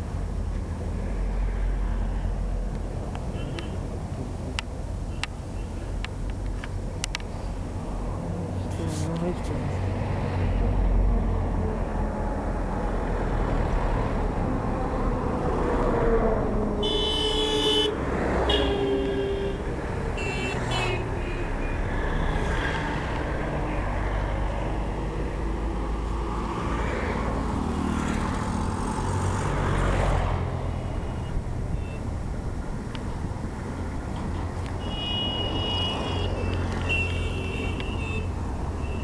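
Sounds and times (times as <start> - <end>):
vehicle engines passing: 0.0 - 39.0
car horns tooting: 16.8 - 19.6, 20.2 - 21.5, 34.8 - 39.0.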